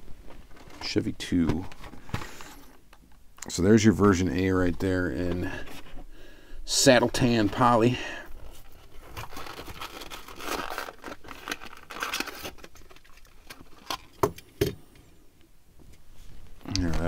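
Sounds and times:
plastic blister pack crinkling: 0:07.1 - 0:14.4.

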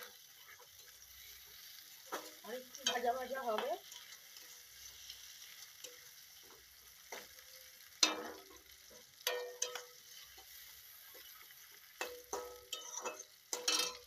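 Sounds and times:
onions sizzling in hot oil: 0:00.0 - 0:14.0
wooden spatula scraping wok: 0:00.0 - 0:14.0
wok ringing: 0:02.4 - 0:04.5, 0:07.9 - 0:10.4, 0:12.0 - 0:14.0.

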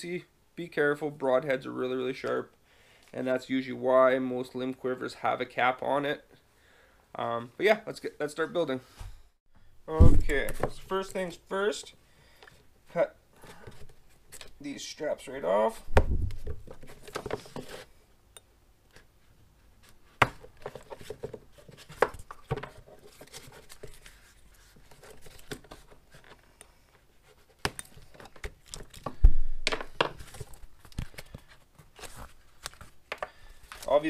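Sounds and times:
soft handling noise: 0:12.3 - 0:18.0, 0:18.8 - 0:34.0.

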